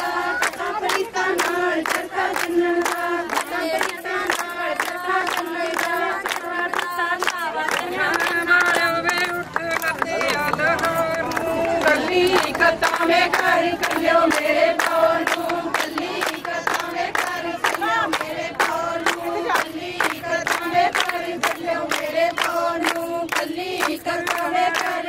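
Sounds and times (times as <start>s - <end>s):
hand clapping: 0.0s - 25.0s
women singing folk song: 0.0s - 25.0s.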